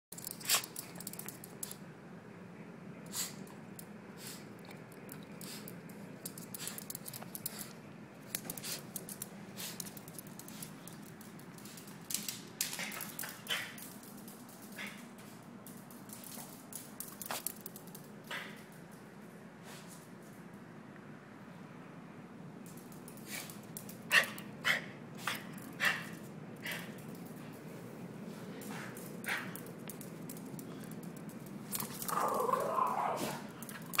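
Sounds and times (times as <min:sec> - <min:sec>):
dog claws clicking on hard floor: 0:00.2 - 0:01.8, 0:04.7 - 0:19.1, 0:22.6 - 0:24.5, 0:28.6 - 0:34.0.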